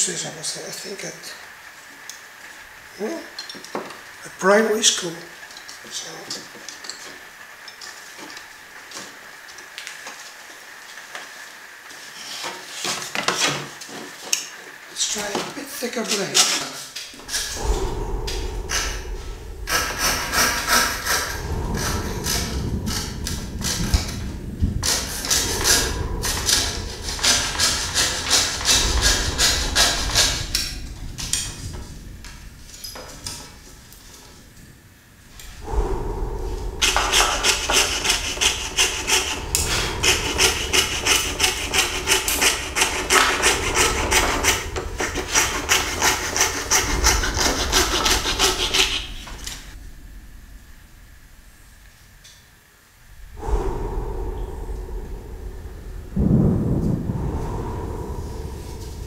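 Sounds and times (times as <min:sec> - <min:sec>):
steady hiss: 0:00.0 - 0:59.0
fret saw sawing plywood: 0:36.8 - 0:49.7.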